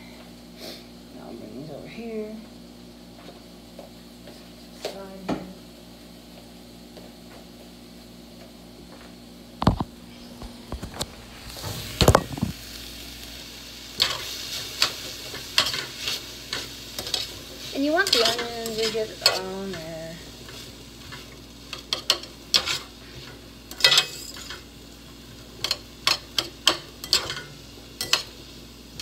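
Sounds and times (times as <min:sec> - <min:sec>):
onions sizzling in a pan: 0:09.6 - 0:29.0
spatula scraping a pan: 0:14.0 - 0:19.9, 0:20.5 - 0:24.6.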